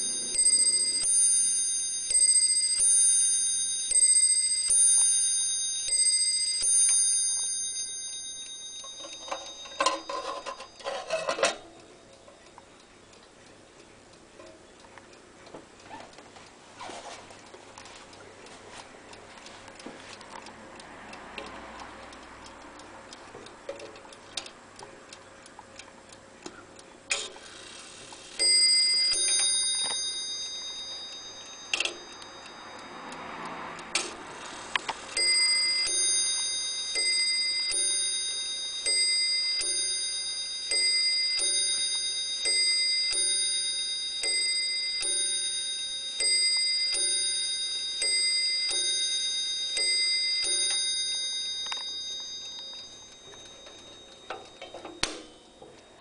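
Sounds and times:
clock bell striking: 0.0 - 12.1, 28.4 - 34.4, 35.1 - 56.0
clock hands clicking: 0.0 - 16.6, 17.3 - 56.0
clock ticking: 0.0 - 56.0.

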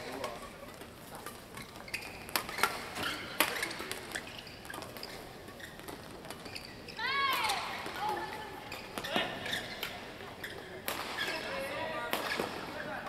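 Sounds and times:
shoe taps and squeaks on court: 0.0 - 11.6
rackets striking shuttlecock: 0.1 - 6.4, 10.8 - 11.3, 12.1 - 12.6.

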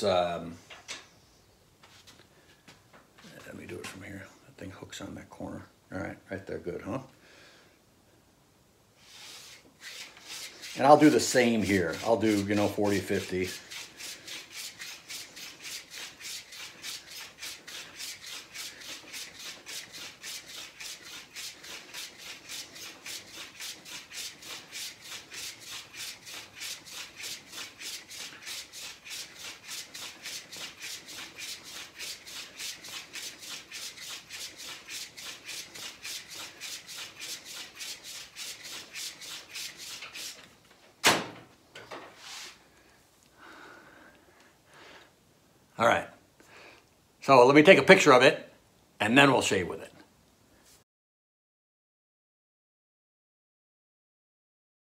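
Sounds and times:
razor stropped on leather: 9.0 - 40.4.

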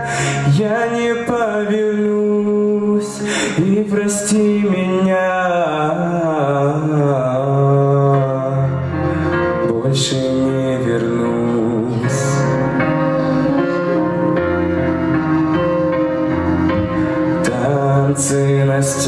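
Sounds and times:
man singing a slow ballad: 0.0 - 12.9, 17.4 - 19.0
backing track: 0.0 - 19.0.

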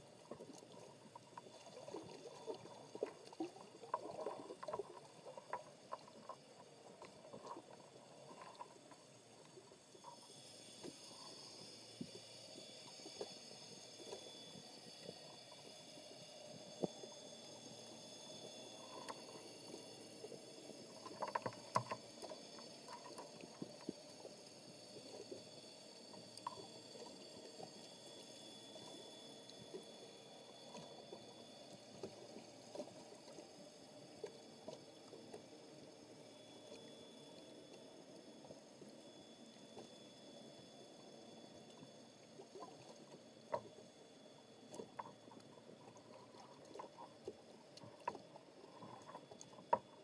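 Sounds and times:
small underwater clicks: 0.0 - 50.0
underwater hiss: 10.0 - 28.9.

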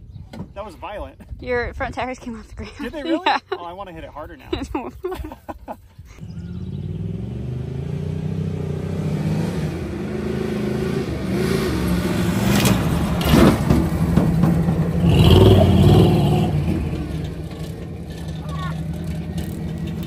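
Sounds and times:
engine accelerating hard: 6.2 - 20.0
vehicle knocks and rattles: 12.5 - 15.6, 16.6 - 20.0.

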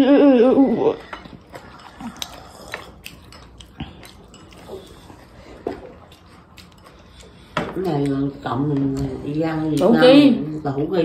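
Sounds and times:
chopsticks tapping dishes: 1.0 - 5.1.

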